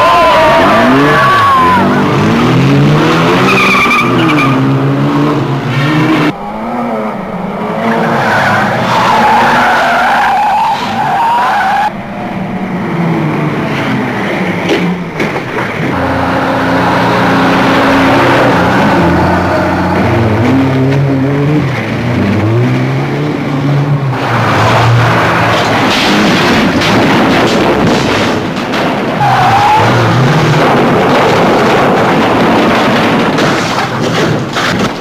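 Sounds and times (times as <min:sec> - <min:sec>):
car engines revving: 0:00.0 - 0:35.0
tyres squealing: 0:07.8 - 0:11.9, 0:29.1 - 0:30.6.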